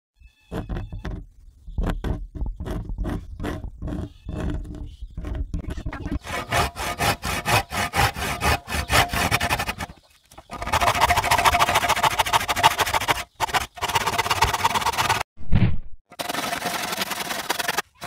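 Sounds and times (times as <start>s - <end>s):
hand saw cutting wood: 6.2s - 15.2s, 16.1s - 18.0s.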